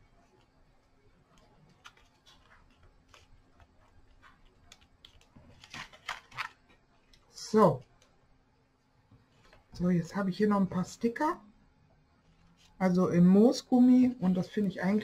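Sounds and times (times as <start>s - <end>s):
card stock rustling: 1.2s - 7.2s
paper rustling: 1.2s - 7.2s.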